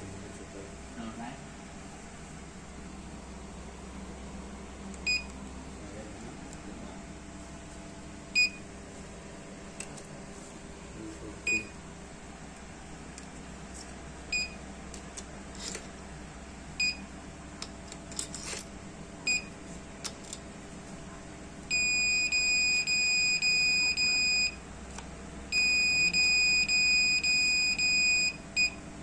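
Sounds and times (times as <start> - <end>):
long warning beeps: 8.4 - 8.6, 21.7 - 24.6, 25.5 - 28.8.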